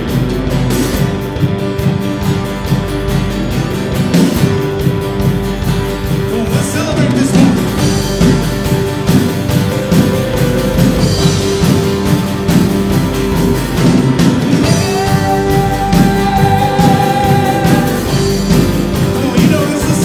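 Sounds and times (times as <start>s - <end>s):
live band playing: 0.0s - 20.0s.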